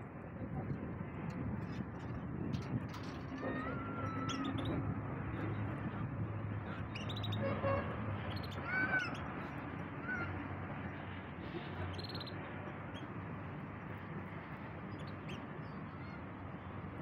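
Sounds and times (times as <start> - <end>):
canary chirping: 6.9 - 7.5, 8.3 - 9.3, 11.9 - 12.3.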